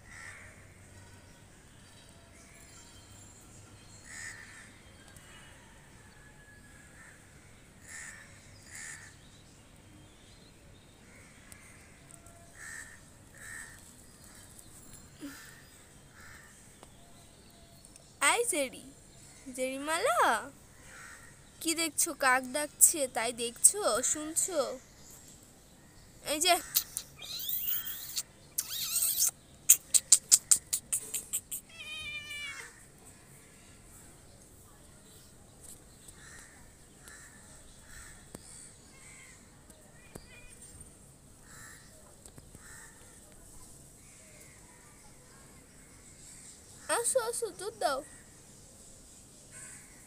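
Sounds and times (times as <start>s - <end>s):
crow cawing: 0.0s - 0.6s, 4.1s - 4.8s, 7.8s - 9.2s, 11.1s - 13.9s, 15.3s - 16.6s, 20.8s - 21.4s, 41.4s - 41.9s
birds twittering chirps: 7.5s - 40.8s
harsh buzzy bird call: 26.5s - 32.8s
bird sharp clicking notes: 26.6s - 31.7s.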